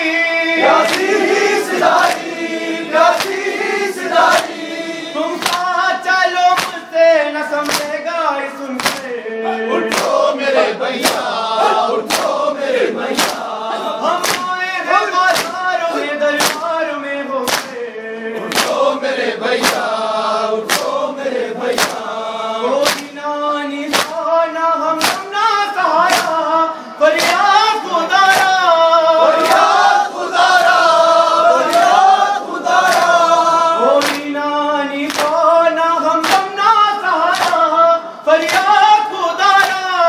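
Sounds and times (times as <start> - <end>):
man reciting: 0.0 - 40.0
men chanting a lament: 0.0 - 40.0
chest-beating slaps: 0.6 - 4.7, 5.4 - 5.7, 6.6 - 6.8, 7.6 - 8.0, 8.8 - 9.2, 9.8 - 13.6, 14.2 - 14.6, 15.3 - 15.6, 16.4 - 16.7, 17.4 - 17.8, 18.5 - 18.9, 19.6 - 19.9, 20.6 - 21.0, 21.7 - 22.1, 22.8 - 23.2, 23.9 - 24.2, 25.0 - 25.3, 26.1 - 26.4, 27.2 - 27.4, 29.4 - 29.9, 31.6 - 32.0, 32.8 - 33.2, 34.0 - 34.3, 35.1 - 35.4, 36.2 - 36.5.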